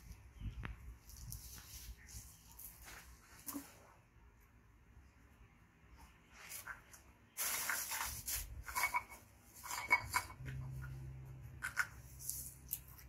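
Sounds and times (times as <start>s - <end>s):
rustling and scraping: 0.0s - 4.1s, 5.9s - 13.0s
low steady hum: 9.6s - 13.0s.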